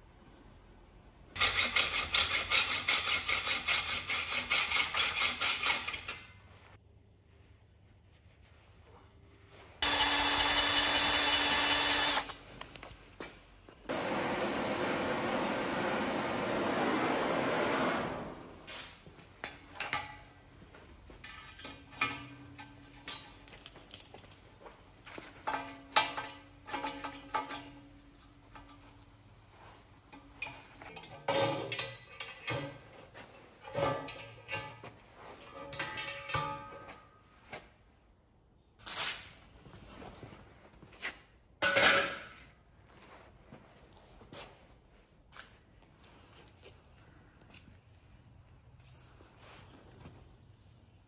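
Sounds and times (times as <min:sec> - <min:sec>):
metallic clinks and taps: 0:21.2 - 0:24.8
metal clanks on metal table: 0:35.5 - 0:37.0.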